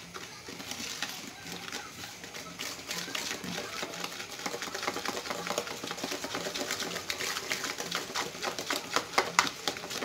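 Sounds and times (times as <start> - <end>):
utensil clicking against bowl: 2.9 - 10.0.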